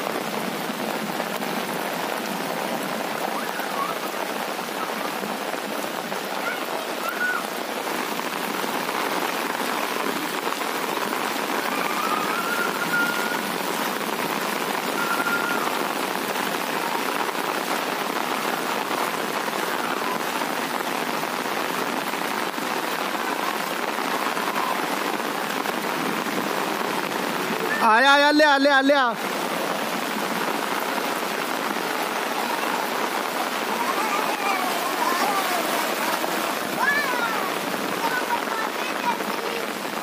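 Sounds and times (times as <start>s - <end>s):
heavy rain on pavement: 0.0s - 40.0s
faint whistle-like notes: 12.0s - 13.4s, 15.0s - 15.6s.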